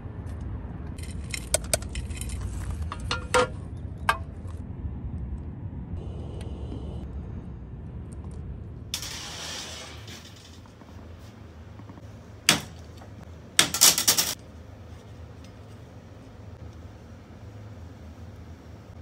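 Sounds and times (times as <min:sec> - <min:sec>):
low steady rumble: 0:00.0 - 0:09.1
metal parts clinking: 0:01.0 - 0:03.6, 0:13.6 - 0:14.4.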